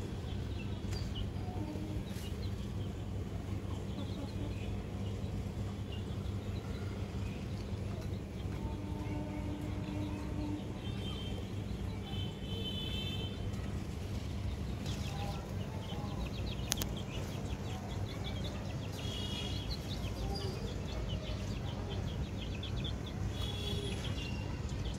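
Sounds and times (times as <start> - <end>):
small birds chirping: 0.0 - 24.9
chickens clucking: 3.5 - 5.2.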